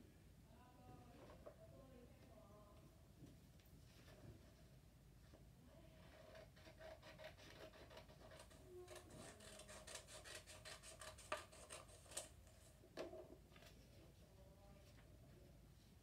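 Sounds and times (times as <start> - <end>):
scissors cutting paper: 6.0 - 12.4.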